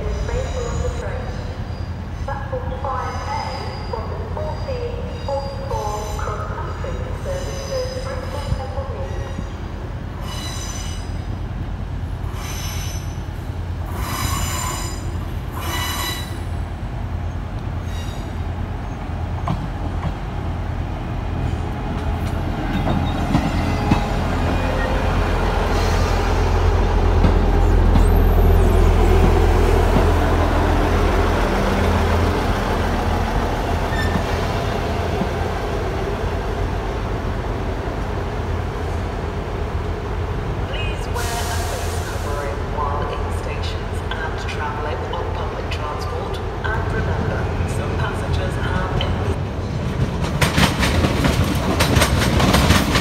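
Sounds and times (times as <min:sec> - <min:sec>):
train wheels squealing: 0:00.0 - 0:02.3, 0:03.0 - 0:06.3, 0:07.2 - 0:08.6, 0:10.2 - 0:11.2, 0:12.3 - 0:13.3, 0:13.9 - 0:16.5, 0:33.9 - 0:34.3.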